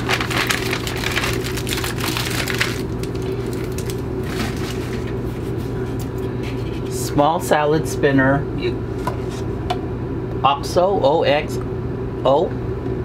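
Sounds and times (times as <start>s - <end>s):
paper bag crinkling: 0.0s - 5.5s
steady low hum: 0.0s - 13.0s.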